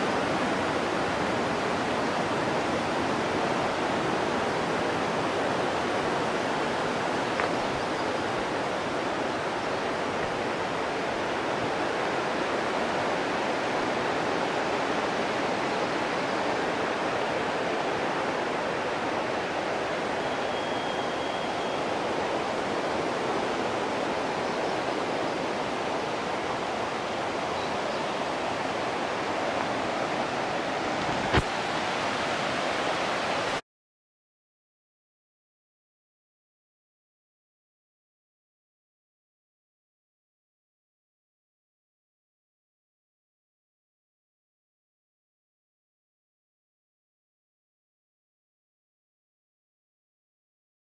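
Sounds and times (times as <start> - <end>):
river water rushing: 0.0 - 33.6.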